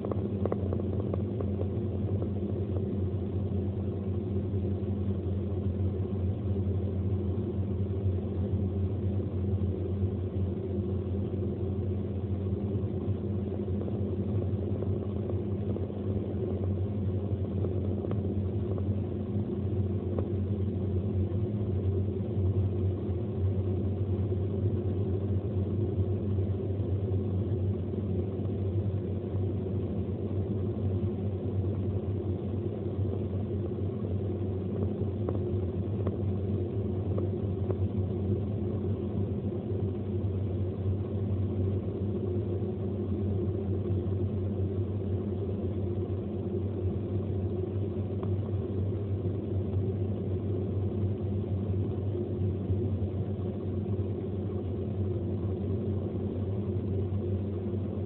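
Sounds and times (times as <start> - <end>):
car engine and tyres rumbling: 0.0 - 5.9.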